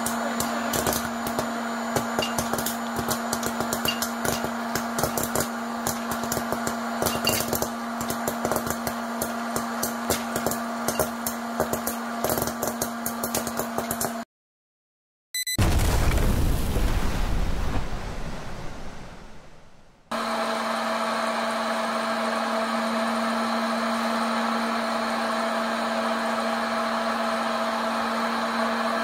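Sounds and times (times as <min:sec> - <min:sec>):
popcorn kernels popping: 0:00.0 - 0:14.2
popcorn machine humming: 0:00.0 - 0:14.2, 0:20.1 - 0:29.0.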